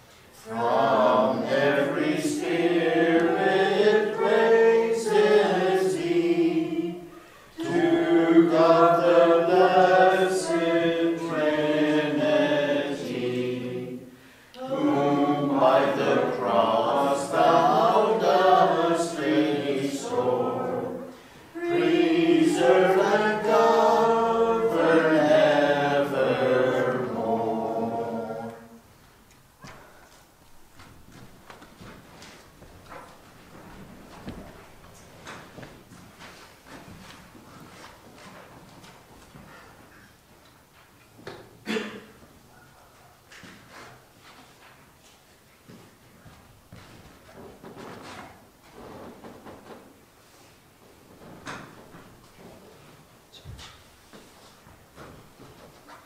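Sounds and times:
choir singing unaccompanied: 0:00.4 - 0:28.9
short breaths: 0:14.1 - 0:14.6.

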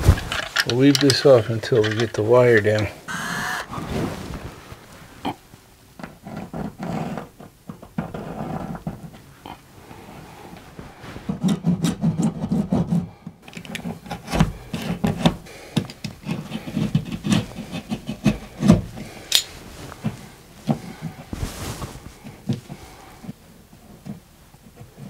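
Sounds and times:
hand saw rasping through drywall: 0:16.2 - 0:19.2.

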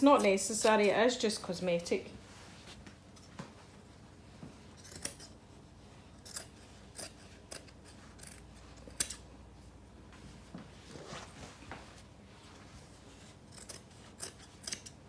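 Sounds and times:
scissors snipping fabric: 0:00.0 - 0:01.0, 0:04.7 - 0:05.4, 0:06.1 - 0:09.3, 0:13.2 - 0:15.0.

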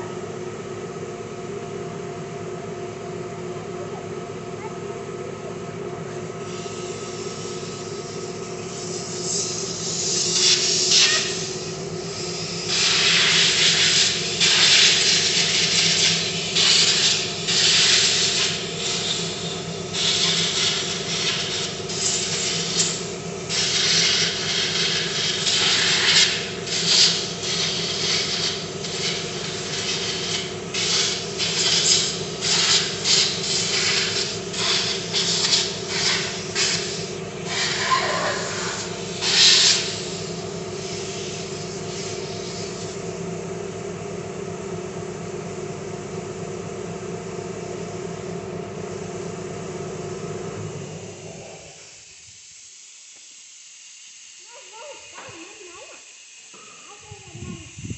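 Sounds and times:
steady low hum: 0:00.0 - 0:57.9
compressed air blow gun hissing: 0:06.5 - 0:43.0, 0:51.0 - 0:57.9.

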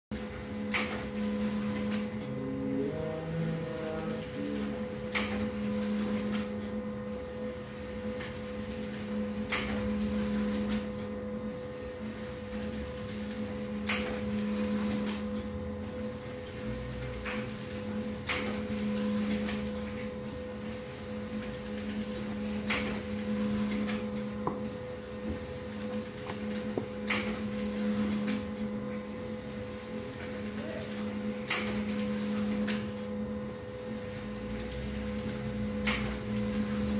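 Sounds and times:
mechanical hum: 0:00.1 - 0:36.9
sharp click: 0:35.8 - 0:36.2.

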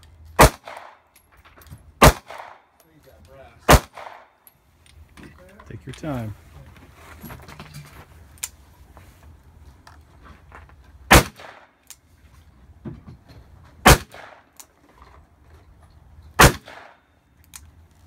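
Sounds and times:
revolver gunshots with echo: 0:00.4 - 0:01.0, 0:02.0 - 0:02.6, 0:03.7 - 0:04.3, 0:11.1 - 0:11.7, 0:13.8 - 0:14.5, 0:16.4 - 0:17.0.

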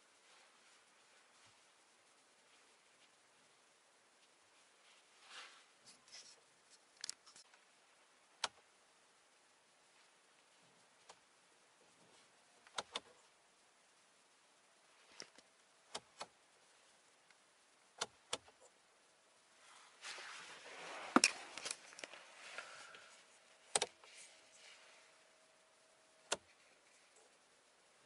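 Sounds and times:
car switches clicking: 0:23.7 - 0:24.0.

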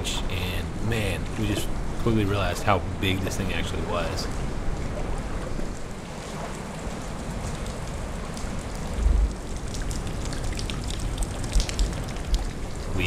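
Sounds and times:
wind on microphone: 0:08.7 - 0:13.0.

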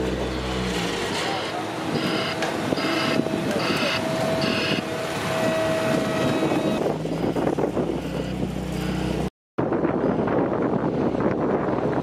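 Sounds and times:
diesel machinery engine running: 0:00.0 - 0:12.0
reversing alarm beeps: 0:02.0 - 0:07.4.

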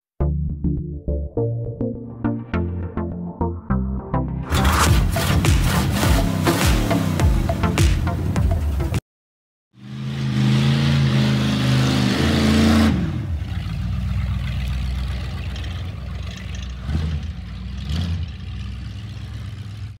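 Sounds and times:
car engine revving: 0:04.5 - 0:09.0, 0:09.8 - 0:20.0.

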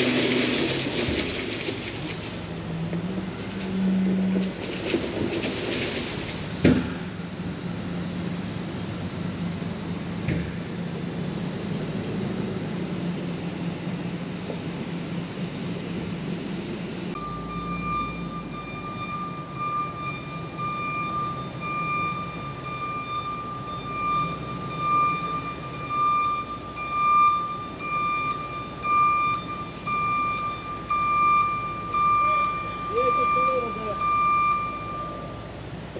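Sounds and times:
truck engine running: 0:00.0 - 0:35.9
reversing alarm beeping: 0:17.1 - 0:35.6.

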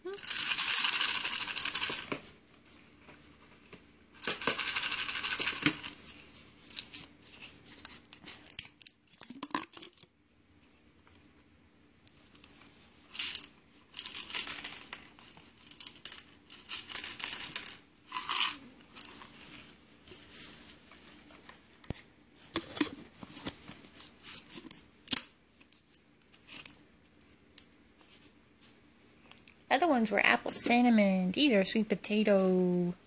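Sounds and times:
snack package crinkling: 0:13.2 - 0:19.3.

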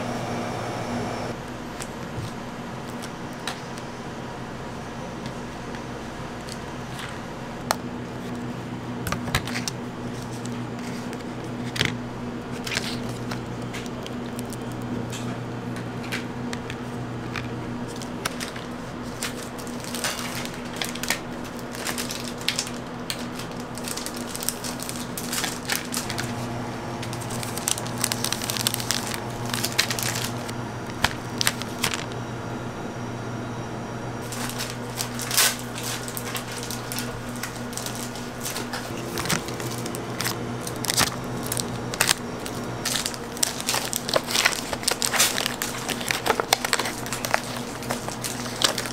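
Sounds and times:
steady low hum: 0:00.0 - 0:48.9
plastic packaging crinkling: 0:09.1 - 0:15.3, 0:16.0 - 0:32.2, 0:34.2 - 0:48.9
chocolate slabs snapping: 0:34.2 - 0:48.9.

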